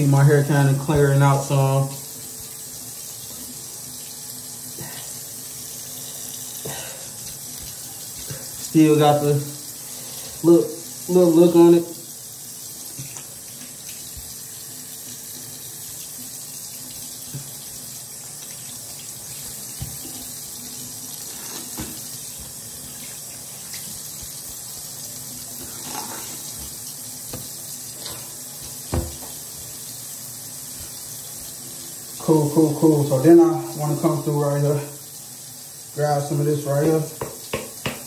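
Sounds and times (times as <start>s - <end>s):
tap running into sink: 19.3s - 20.4s, 21.4s - 24.7s, 25.6s - 29.8s, 37.1s - 38.0s
hands knocking and splashing: 28.6s - 29.4s, 37.2s - 38.0s.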